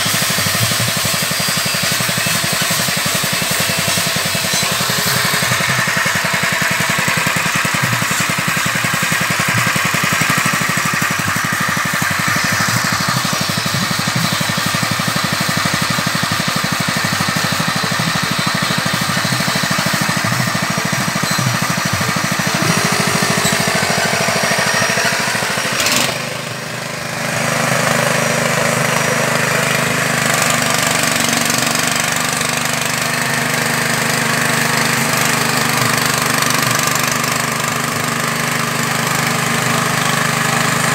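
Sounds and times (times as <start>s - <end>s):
small engine rattling: 0.0s - 40.9s.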